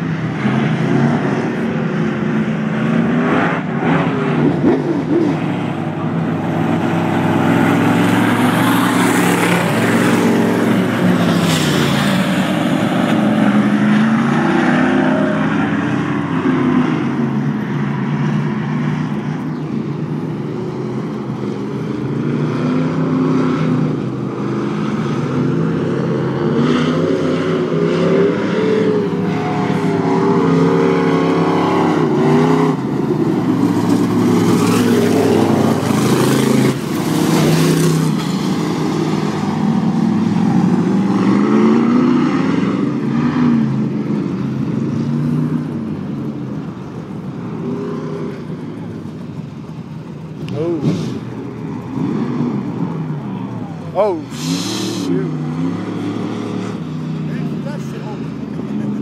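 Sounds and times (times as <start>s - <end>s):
race car engines revving: 0.0s - 59.0s.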